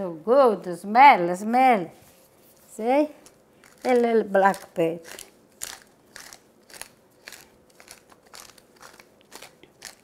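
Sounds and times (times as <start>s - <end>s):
pepper mill grinding: 3.2s - 10.0s.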